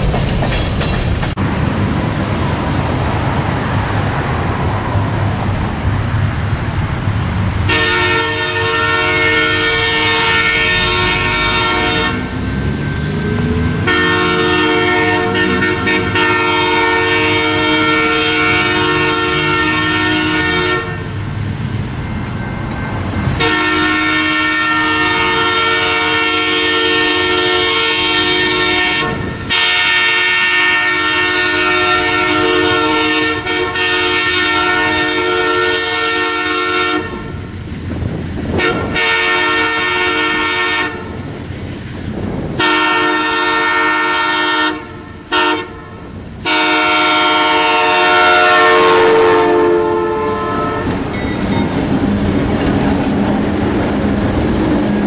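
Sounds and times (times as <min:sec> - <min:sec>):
wheels clacking over rail joints: 0:00.0 - 0:07.7, 0:50.4 - 0:55.0
locomotive engine: 0:00.0 - 0:55.0
locomotive air horn blasts: 0:07.6 - 0:12.4, 0:13.8 - 0:21.2, 0:23.4 - 0:37.4, 0:38.5 - 0:41.2, 0:42.6 - 0:51.1.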